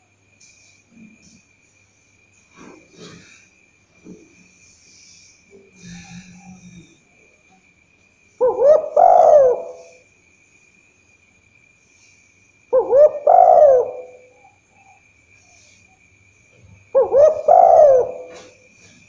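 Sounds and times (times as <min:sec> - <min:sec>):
dove cooing: 0:08.4 - 0:10.0, 0:12.7 - 0:15.0, 0:16.8 - 0:19.0.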